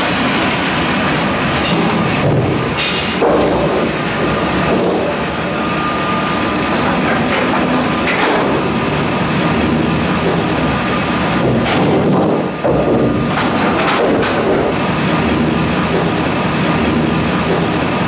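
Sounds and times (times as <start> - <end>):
band sawmill running: 0.0 - 18.0
mechanical knocks: 1.6 - 5.3, 6.7 - 8.8, 10.2 - 14.9.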